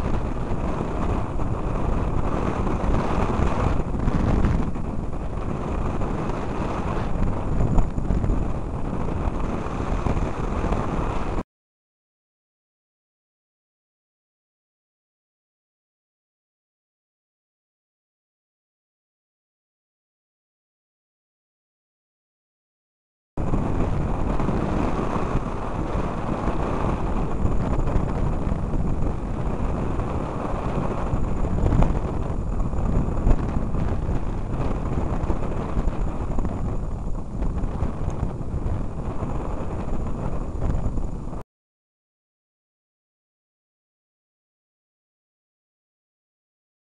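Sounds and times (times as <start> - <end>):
gusty wind buffeting microphone: 0.0 - 11.4, 23.4 - 41.4.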